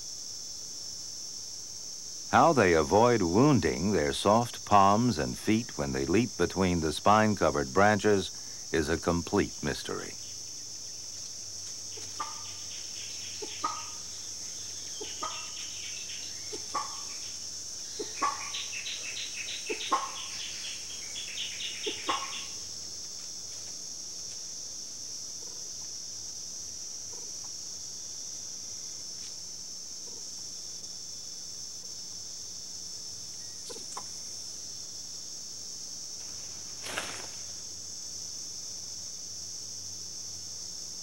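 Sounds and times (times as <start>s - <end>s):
high-pitched insect buzz: 0.0s - 41.0s
short clucking animal calls: 12.1s - 12.5s, 13.4s - 14.0s, 18.0s - 18.6s, 19.6s - 20.3s, 21.8s - 22.6s.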